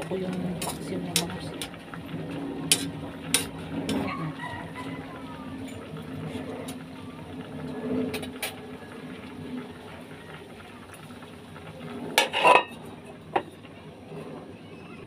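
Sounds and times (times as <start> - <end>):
metal lid clanking on wok: 2.7 - 3.6, 12.2 - 12.8.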